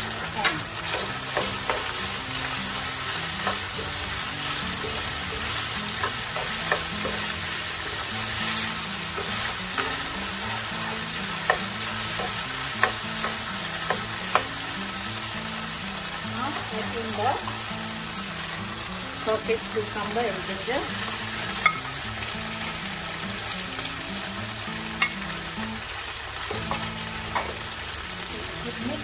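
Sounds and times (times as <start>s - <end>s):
food sizzling in oil: 0.0s - 29.0s
spatula scraping and tapping pan: 0.4s - 14.7s.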